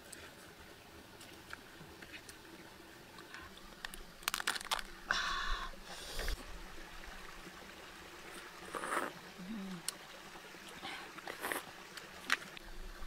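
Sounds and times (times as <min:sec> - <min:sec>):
crab shell cracking: 0:03.8 - 0:05.0.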